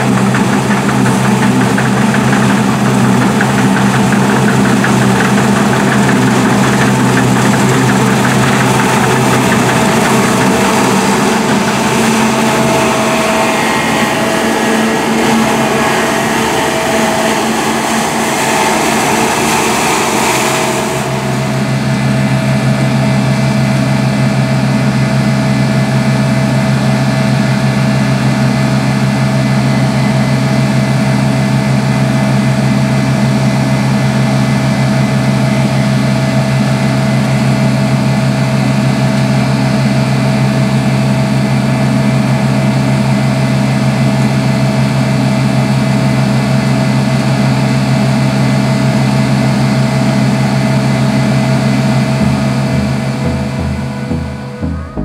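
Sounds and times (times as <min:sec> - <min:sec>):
combine harvester running: 0:00.0 - 0:55.0.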